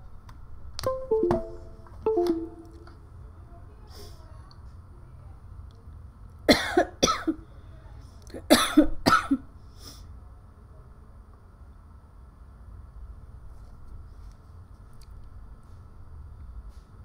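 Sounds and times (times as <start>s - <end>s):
woman coughing: 6.5s - 7.4s, 8.5s - 9.4s.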